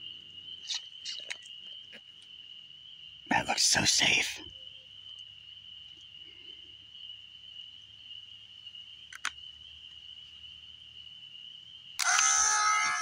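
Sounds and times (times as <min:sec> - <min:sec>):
high-pitched insect drone: 0:09.2 - 0:13.0.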